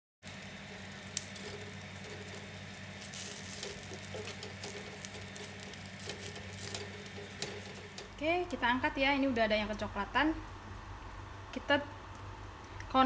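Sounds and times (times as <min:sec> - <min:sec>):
leaves rustling and crackling: 0:00.2 - 0:09.9
steady low hum: 0:00.2 - 0:13.0.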